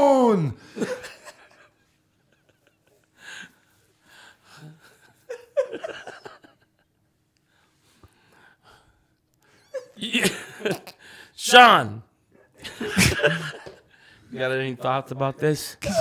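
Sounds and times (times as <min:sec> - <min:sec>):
men laughing: 0:00.6 - 0:07.2, 0:09.5 - 0:11.1, 0:12.4 - 0:14.2.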